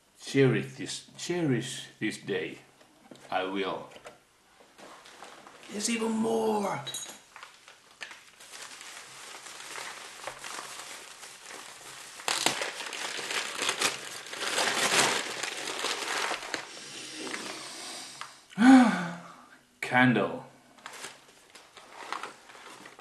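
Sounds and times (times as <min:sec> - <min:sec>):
bubble wrap and paper crinkling: 0:04.8 - 0:06.7, 0:07.3 - 0:17.6, 0:20.8 - 0:23.0.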